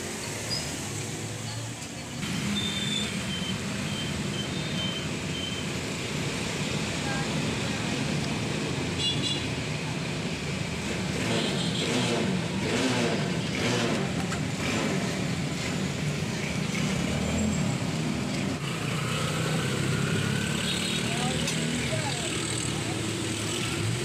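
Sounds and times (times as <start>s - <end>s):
traffic hum: 0.0s - 24.0s
vehicle engine passing: 10.7s - 24.0s.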